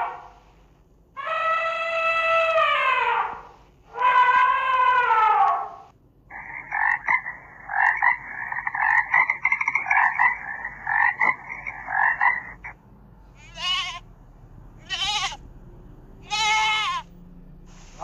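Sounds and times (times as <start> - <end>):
short wavering animal calls: 1.2 - 12.8
fast pulsing animal chorus: 6.3 - 12.8.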